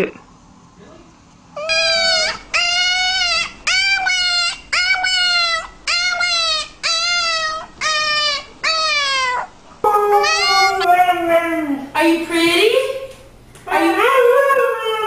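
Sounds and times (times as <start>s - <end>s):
dog whining: 1.5s - 11.9s.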